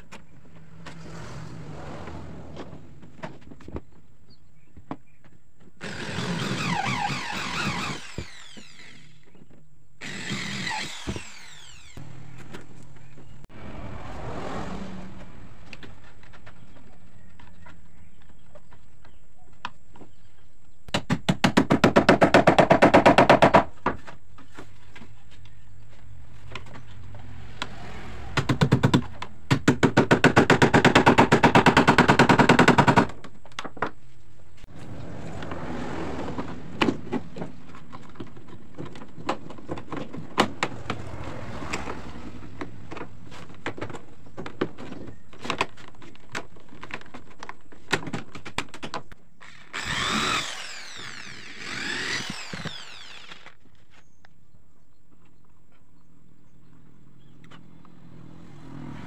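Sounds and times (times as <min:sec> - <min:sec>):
power tool rattling: 0:05.8 - 0:09.4, 0:10.0 - 0:12.0, 0:49.4 - 0:53.6
whirring winding down: 0:06.1 - 0:09.3, 0:10.0 - 0:12.1, 0:49.5 - 0:53.6.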